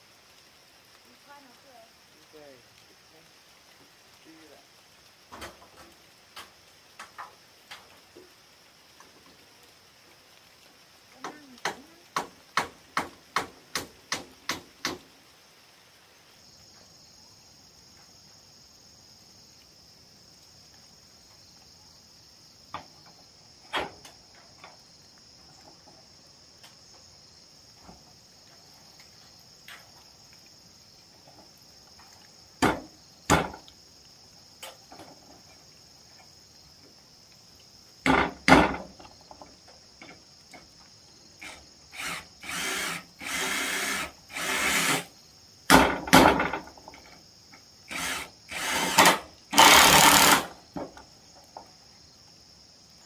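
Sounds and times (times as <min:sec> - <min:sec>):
insects chirring: 0:00.0 - 0:53.0
hammer knocks on metal roof sheets: 0:11.6 - 0:15.0, 0:32.6 - 0:33.6, 0:38.0 - 0:38.9, 0:45.7 - 0:46.7.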